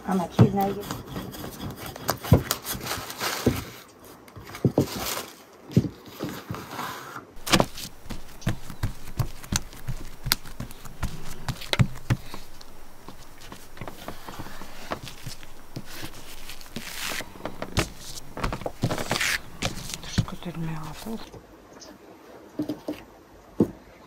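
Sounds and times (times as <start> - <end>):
rolling pin knocking on table: 7.4 - 21.1.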